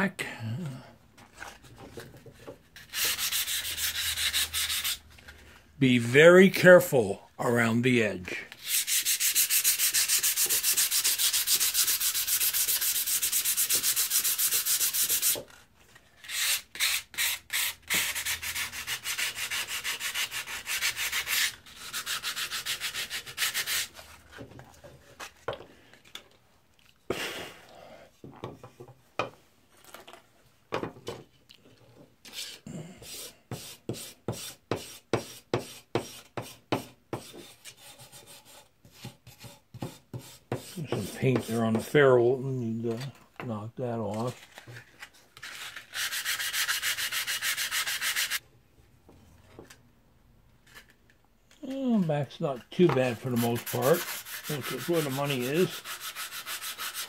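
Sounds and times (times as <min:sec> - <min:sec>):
sandpaper scrubbing rusty steel: 0:02.9 - 0:05.0, 0:08.6 - 0:15.4, 0:16.3 - 0:23.9, 0:45.6 - 0:48.4, 0:53.0 - 0:57.0.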